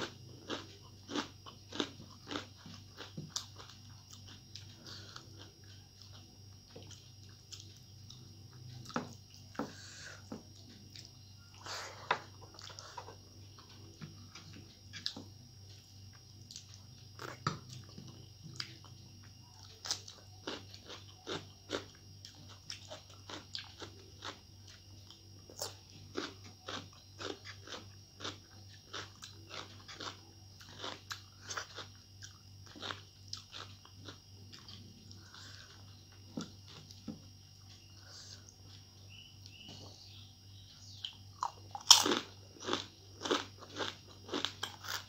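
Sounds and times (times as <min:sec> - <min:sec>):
chewing crisp chips crunching: 0:00.0 - 0:08.9, 0:16.4 - 0:37.0, 0:40.9 - 0:45.0
steady low hum: 0:00.0 - 0:45.0.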